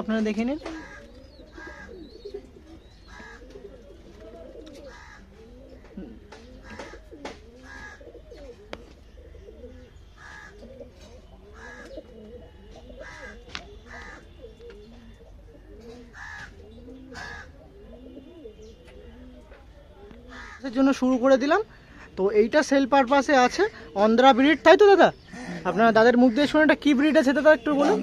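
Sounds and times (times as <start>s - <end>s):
pigeons cooing: 0.0s - 21.0s, 23.4s - 28.0s
sharp bird calls: 0.4s - 20.8s.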